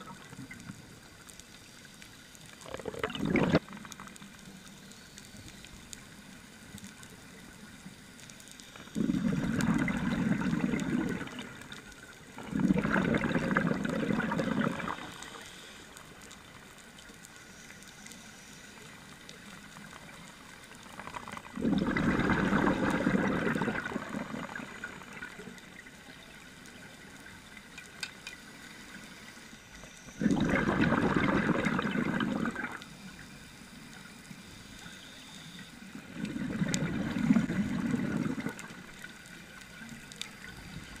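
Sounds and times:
exhaled bubbles underwater: 2.6s - 4.2s, 8.8s - 15.4s, 20.8s - 26.3s, 30.2s - 32.9s, 35.9s - 41.0s.

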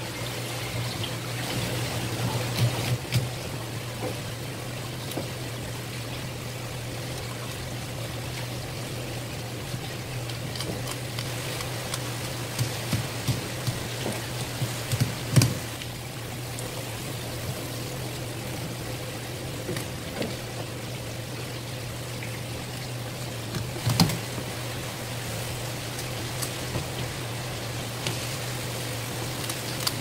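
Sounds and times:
steady hum: 0.0s - 30.0s
scissors snipping fin: 10.3s - 15.6s.

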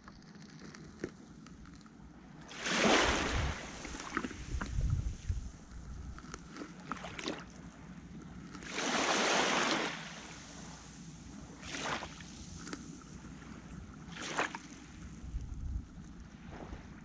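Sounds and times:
low wind rumble: 2.0s - 6.6s, 14.8s - 17.0s
sea waves washing onto shore: 2.4s - 5.7s, 8.6s - 15.3s.

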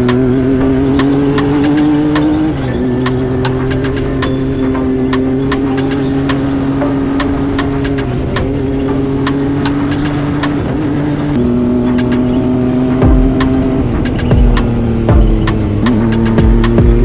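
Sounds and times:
utility vehicle engine running: 0.0s - 17.0s.

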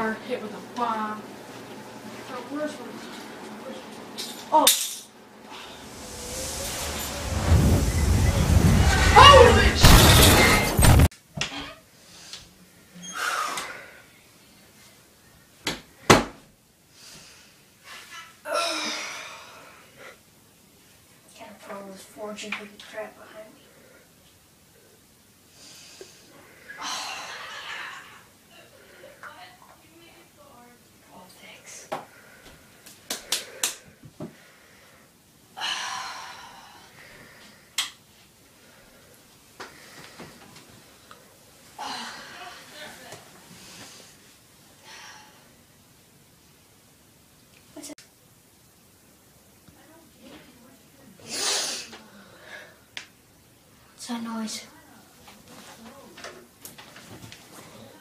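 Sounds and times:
soft rushing sound: 5.5s - 11.0s.

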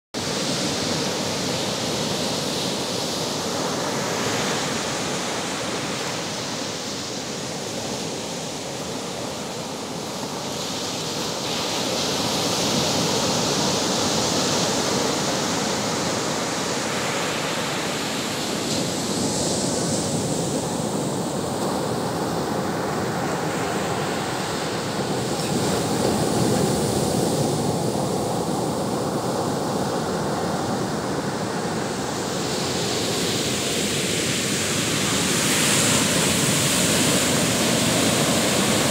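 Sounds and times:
ocean surf breaking on beach: 0.2s - 38.9s.

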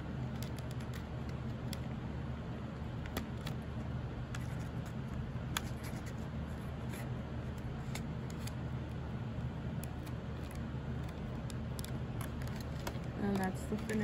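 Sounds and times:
steady low hum: 0.0s - 14.0s
paper crinkles and clicks: 0.2s - 1.8s, 4.3s - 8.6s, 9.8s - 14.0s.

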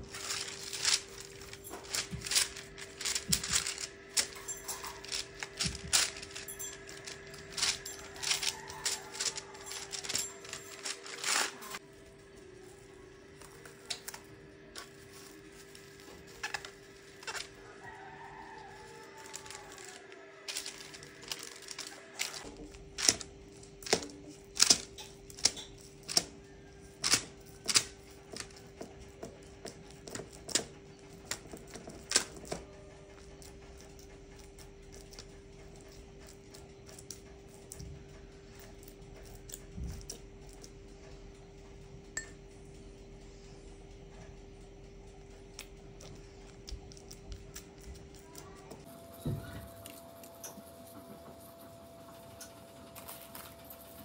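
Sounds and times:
fingers patting sticky dough: 0.0s - 11.8s, 13.2s - 54.0s
cling film crinkling: 0.0s - 12.1s, 13.2s - 26.2s.

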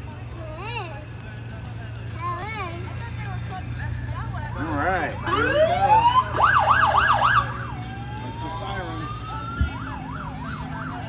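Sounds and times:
siren wailing and yelping: 5.3s - 11.0s.

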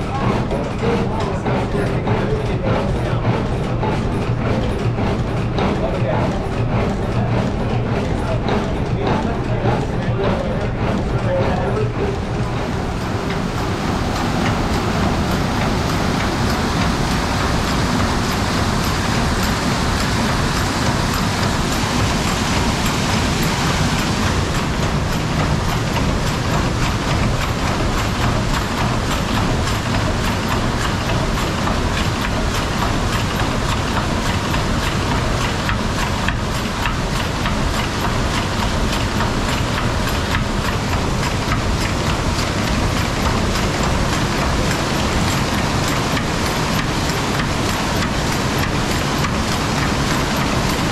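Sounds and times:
mill machinery clattering: 0.0s - 50.9s
water rushing: 12.4s - 50.9s.

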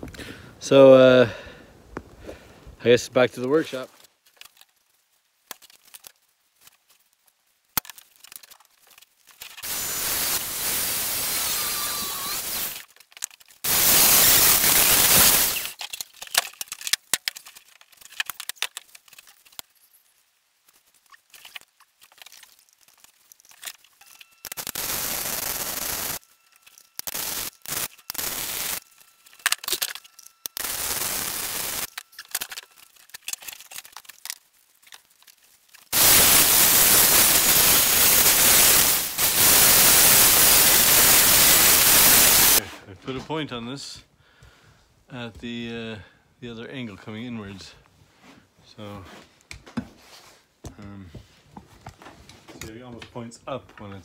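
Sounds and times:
electric welding arc: 9.4s - 12.9s, 13.6s - 15.8s, 24.0s - 33.0s, 35.9s - 42.6s.

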